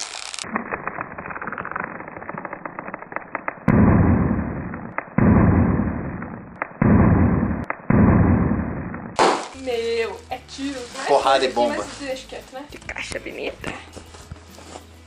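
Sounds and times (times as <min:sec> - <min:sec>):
plastic air packaging crinkling: 0:00.0 - 0:03.7, 0:09.4 - 0:12.4
explosion booms: 0:03.7 - 0:09.4.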